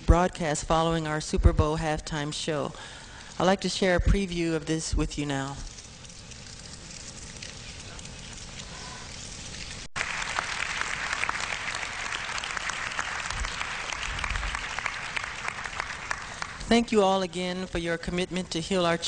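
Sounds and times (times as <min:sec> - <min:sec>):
audience applauding: 0:10.0 - 0:16.6.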